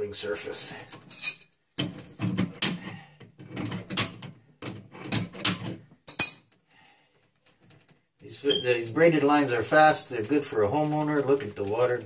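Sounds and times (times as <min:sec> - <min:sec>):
metal fittings rattling and scraping: 0:00.7 - 0:06.6.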